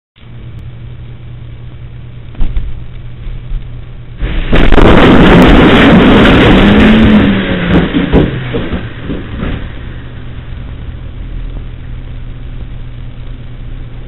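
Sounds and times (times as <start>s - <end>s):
car engine: 0.2s - 14.0s
low hum: 0.2s - 14.0s
crash of breaking glass and debris: 4.2s - 9.8s
thump: 7.7s - 9.7s.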